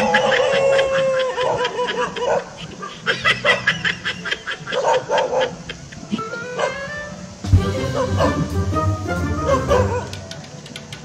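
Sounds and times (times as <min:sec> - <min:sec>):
rapid laughter: 0:00.0 - 0:06.7
tone sliding down in pitch: 0:07.4 - 0:10.3.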